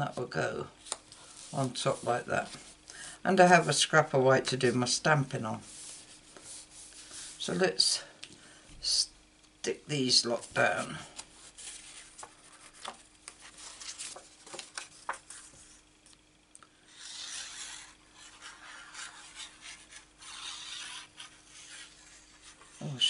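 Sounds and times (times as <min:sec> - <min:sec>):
paper rubbing and shifting: 0:10.4 - 0:15.9, 0:16.9 - 0:23.0.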